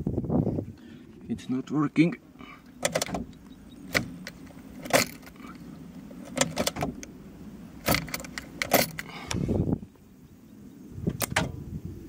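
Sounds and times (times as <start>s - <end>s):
steady low hum: 0.0s - 12.0s
car ignition key turning: 2.7s - 7.1s, 7.8s - 9.4s.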